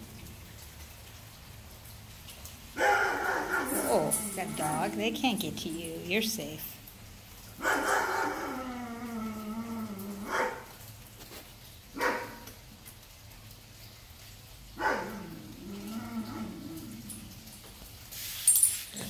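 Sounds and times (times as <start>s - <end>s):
big dogs barking: 2.8s - 5.2s, 7.6s - 9.4s, 10.1s - 10.8s, 12.0s - 12.5s, 14.8s - 17.1s.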